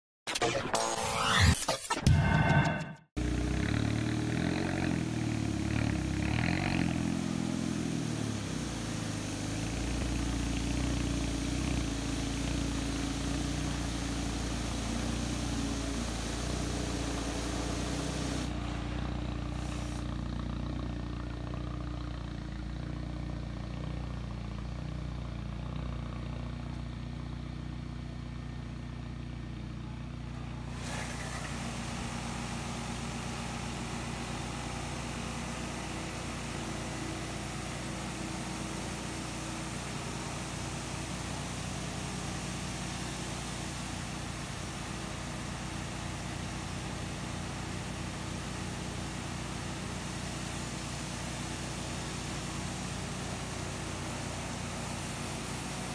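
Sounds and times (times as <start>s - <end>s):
car wash machine humming: 3.2s - 25.7s, 29.6s - 55.9s
water spray hissing: 5.3s - 18.6s, 19.3s - 20.4s, 30.6s - 46.4s.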